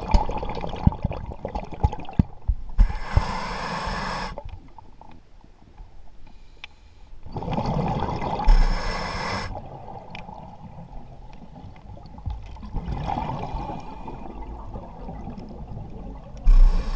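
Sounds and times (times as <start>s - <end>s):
diver inhaling through regulator: 2.8s - 4.4s, 8.5s - 9.6s, 16.5s - 16.9s
rush of exhaled bubbles: 7.3s - 10.4s, 12.6s - 16.9s.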